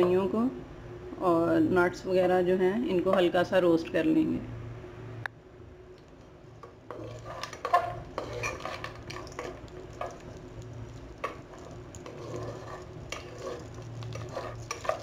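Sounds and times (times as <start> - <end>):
light sizzling: 5.9 - 15.0
spatula scraping nuts in pot: 6.6 - 15.0.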